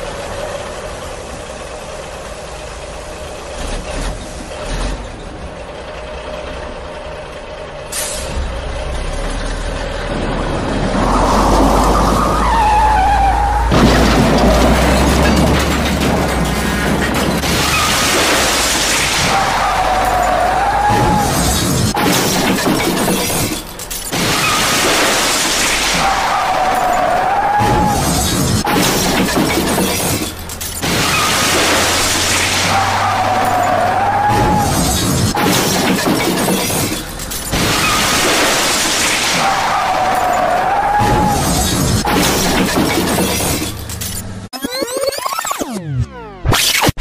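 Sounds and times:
shattering crash sound effect: 13.6 - 43.8.

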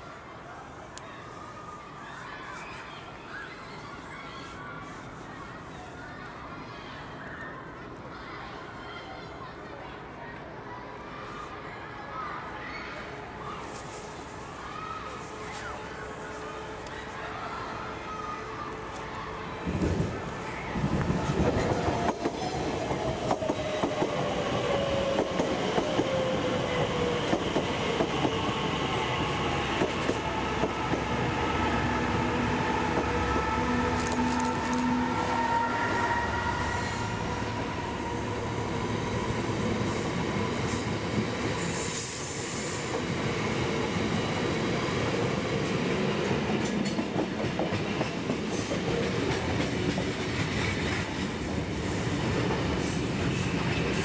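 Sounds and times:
diesel locomotive engine: 15.0 - 54.0
electric train whining: 15.9 - 45.7.

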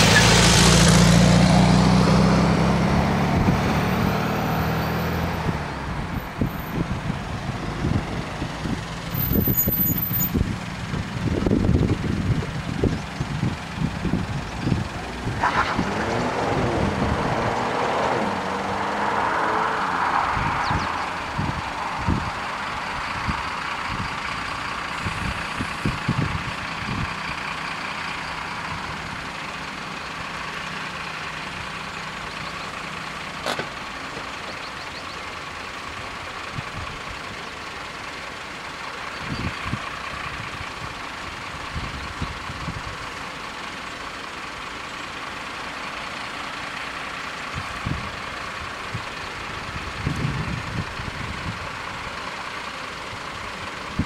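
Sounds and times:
vehicle engines idling: 0.0 - 54.0
wind buffeting microphone: 10.3 - 15.4.

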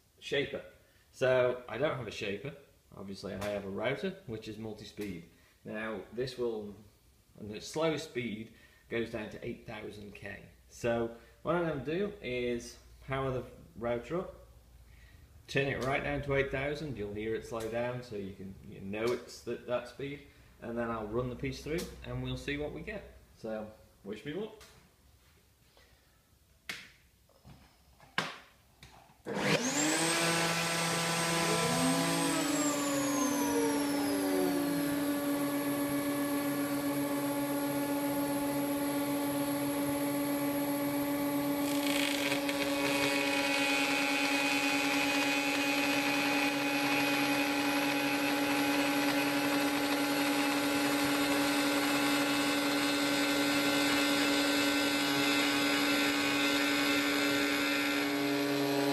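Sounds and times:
router whining: 29.2 - 58.9
router bit cutting wood: 29.3 - 58.9.

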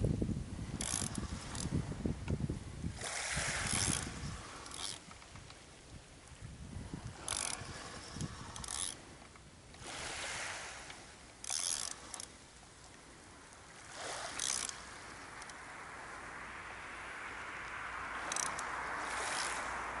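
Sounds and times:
surf washing in: 0.0 - 20.0
fishing reel rasping: 0.8 - 1.9, 3.0 - 5.4, 6.9 - 9.2, 9.8 - 12.4, 13.6 - 20.0.

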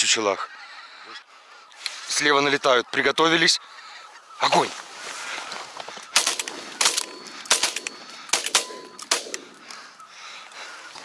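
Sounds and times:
shotgun shots: 6.1 - 9.6.

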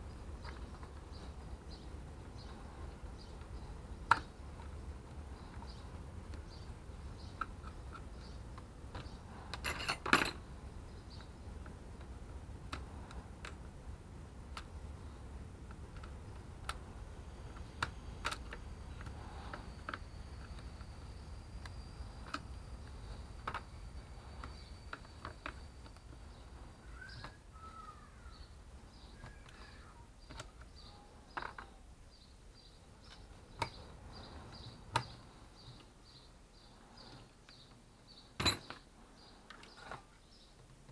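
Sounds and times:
low background rumble: 0.0 - 37.2
small parts set down: 9.5 - 10.4, 38.4 - 38.8.

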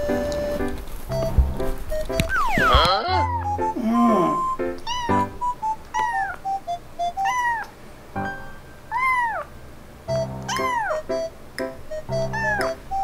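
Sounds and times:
simple melody of held notes: 0.0 - 13.0
kitten meowing: 2.2 - 6.6, 7.2 - 7.8, 8.9 - 9.6, 10.4 - 11.1, 12.1 - 13.0.

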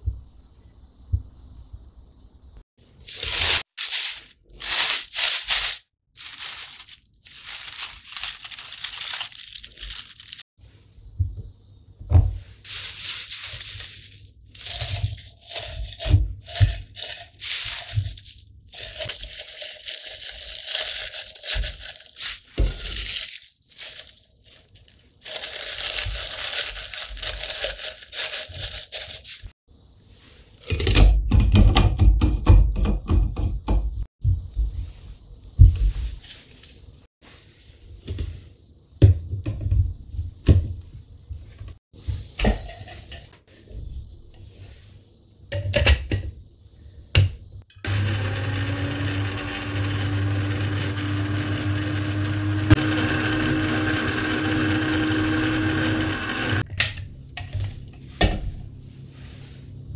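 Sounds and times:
dry leaves crackling: 3.0 - 10.4, 12.6 - 29.5.

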